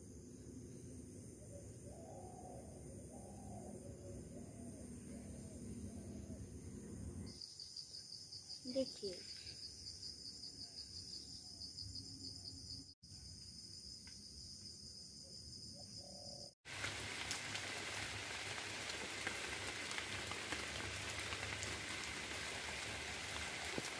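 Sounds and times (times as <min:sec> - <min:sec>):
insects chorus: 0:00.0 - 0:23.9
even hiss with fine patter: 0:16.7 - 0:23.9.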